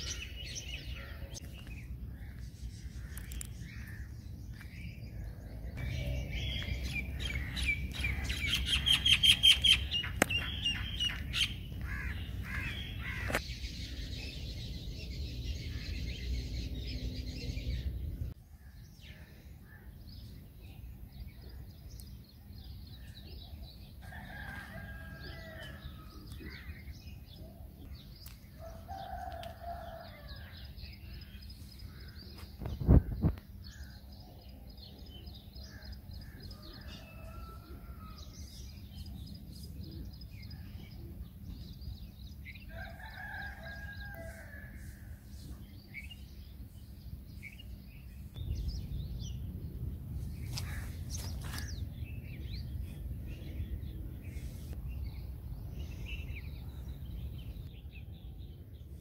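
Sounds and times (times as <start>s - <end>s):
small birds chirping and singing: 0.0s - 59.0s
low rumble: 47.8s - 59.0s.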